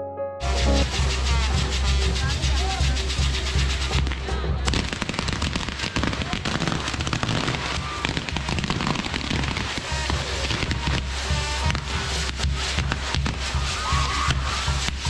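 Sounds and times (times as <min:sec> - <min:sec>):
band music: 0:00.0 - 0:08.5
crowd voices: 0:00.4 - 0:15.0
fireworks fizzing and popping: 0:00.4 - 0:15.0.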